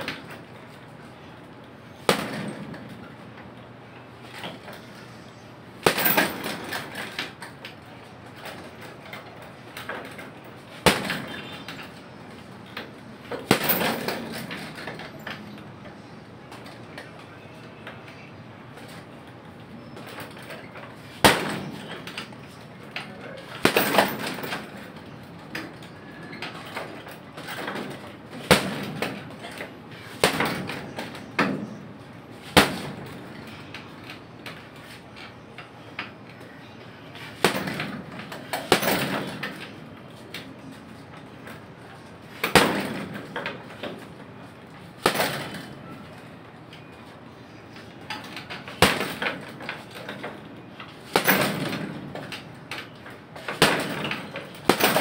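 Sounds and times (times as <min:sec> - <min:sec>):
punching bag smacks: 0:02.0 - 0:02.6, 0:05.8 - 0:06.8, 0:13.3 - 0:14.7, 0:23.6 - 0:24.6, 0:30.0 - 0:31.8.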